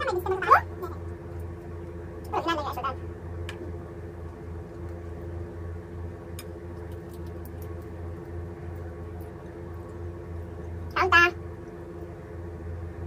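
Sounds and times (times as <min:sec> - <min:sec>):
machine-like hum: 0:00.0 - 0:13.0
faint clicks of eating food: 0:06.3 - 0:10.0.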